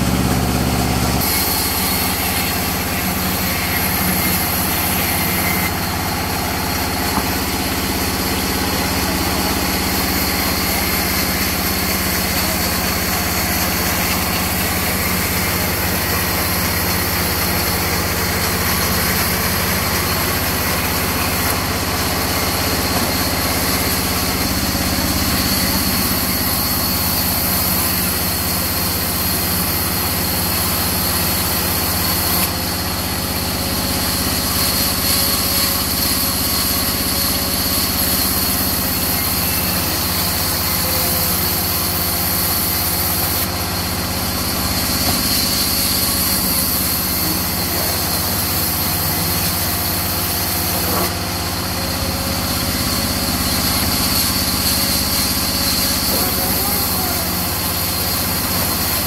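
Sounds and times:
band saw cutting wood: 0.0s - 59.0s.

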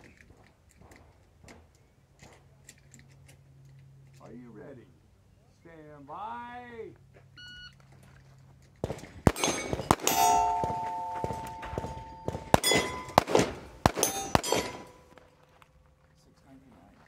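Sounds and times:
pistol shots: 8.8s - 15.2s
steel plates clanging: 9.3s - 15.2s.

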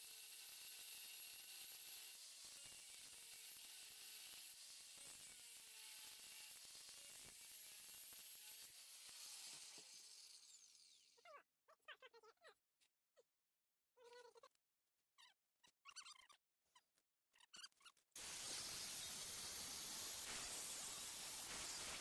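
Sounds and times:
angle grinder grinding steel: 0.0s - 11.2s, 18.2s - 22.0s
short squeaks: 15.2s - 18.1s.

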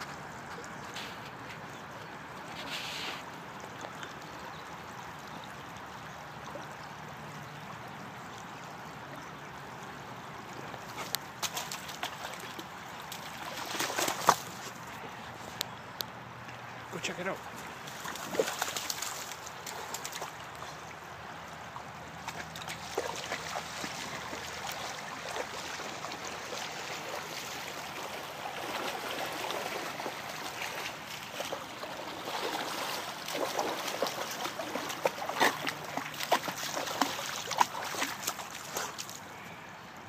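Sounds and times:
creek running over stones: 0.0s - 40.0s
dog splashing in water: 10.8s - 14.8s, 17.8s - 20.7s, 22.1s - 39.2s.

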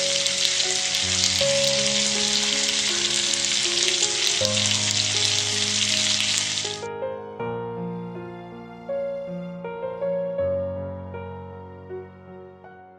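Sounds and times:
fish sizzling in hot oil: 0.0s - 6.9s.

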